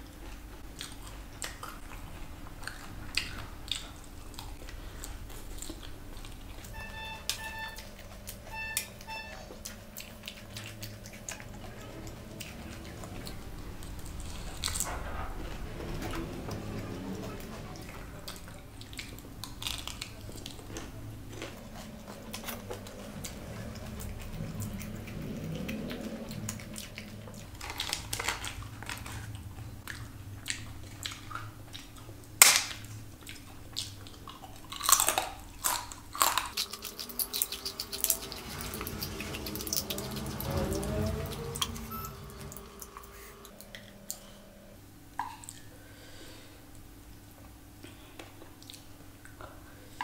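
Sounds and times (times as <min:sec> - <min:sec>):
wet chewing: 0:00.0 - 0:44.3, 0:48.2 - 0:49.7
crisp crunching bites: 0:27.6 - 0:29.3, 0:34.6 - 0:40.4.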